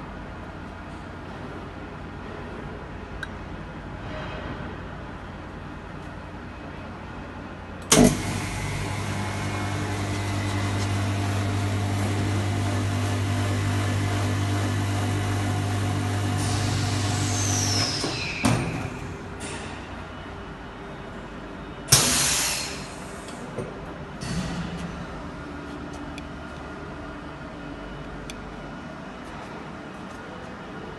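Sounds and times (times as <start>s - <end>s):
vacuum pump humming: 7.9s - 17.4s.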